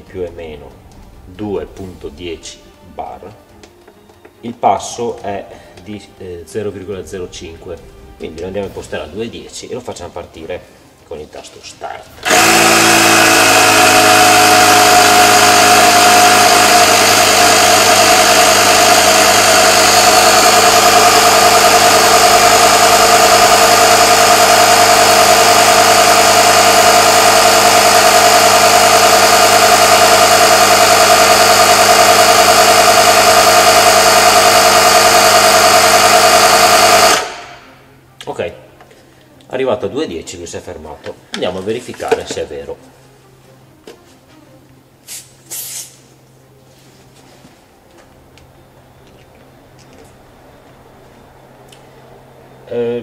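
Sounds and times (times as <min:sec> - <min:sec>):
electric tyre inflator pumping: 0:12.2 - 0:37.8, 0:45.1 - 0:46.1.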